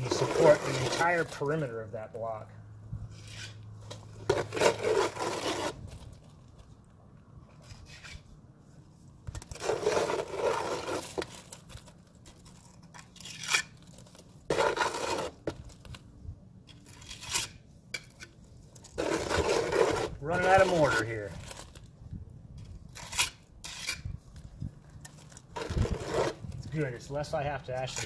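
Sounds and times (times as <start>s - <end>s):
trowel scraping mortar: 0.0s - 1.8s, 3.1s - 6.2s, 9.3s - 11.8s, 12.4s - 15.8s, 16.7s - 21.8s, 22.6s - 28.0s.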